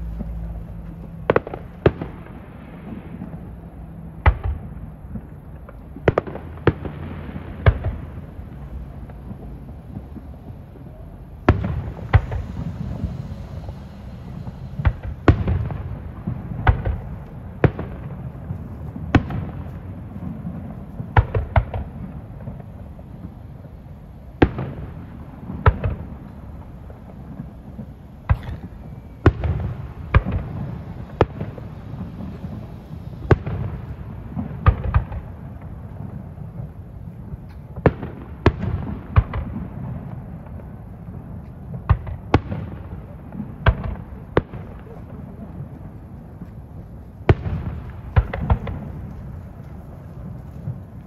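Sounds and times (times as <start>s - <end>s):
low rumble: 0.0s - 37.7s
firework shells bursting: 7.6s - 19.8s.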